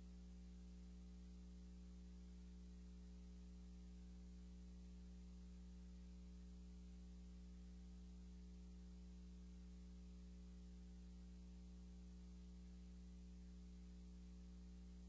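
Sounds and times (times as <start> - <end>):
faint electrical hum with hiss: 0.0 - 15.0.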